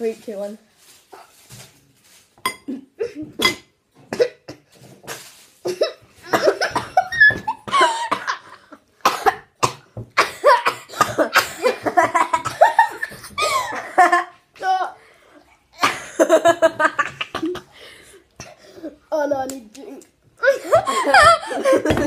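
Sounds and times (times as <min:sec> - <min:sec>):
children coughing and sputtering: 0:02.6 - 0:14.3, 0:15.7 - 0:19.0, 0:20.4 - 0:22.0
children laughing: 0:05.8 - 0:08.8, 0:10.4 - 0:14.4, 0:15.8 - 0:17.8, 0:20.4 - 0:22.0.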